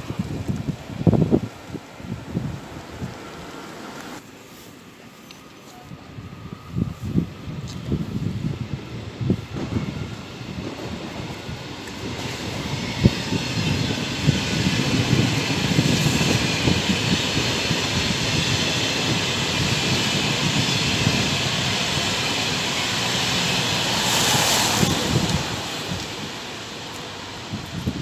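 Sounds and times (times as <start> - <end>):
train passing on rails: 0.0 - 28.0.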